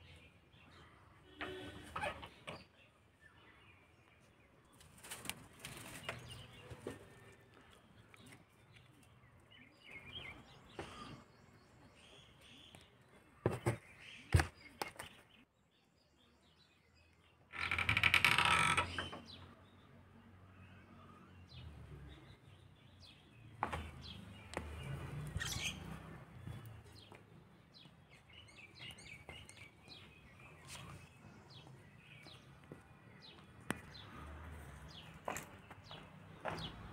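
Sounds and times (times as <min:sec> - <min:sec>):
birds chirping: 0:00.0 - 0:36.9
rustles: 0:04.7 - 0:09.2.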